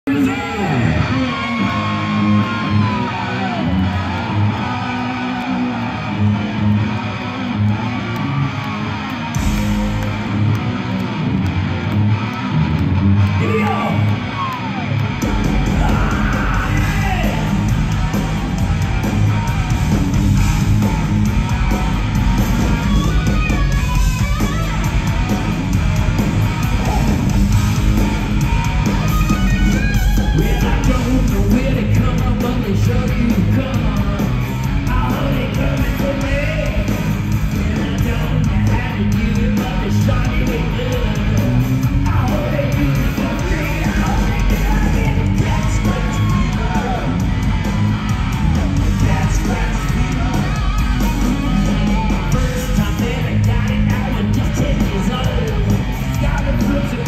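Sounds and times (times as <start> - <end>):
bass guitar: 0.0 - 57.0
drums: 0.0 - 57.0.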